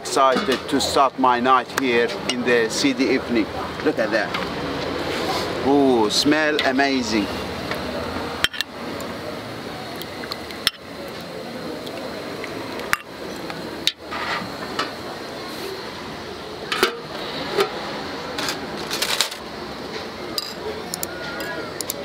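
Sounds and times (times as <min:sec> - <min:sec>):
steady background noise: 0:00.0 - 0:22.0
utensils clinking on metal pot: 0:08.4 - 0:08.7, 0:20.4 - 0:22.0.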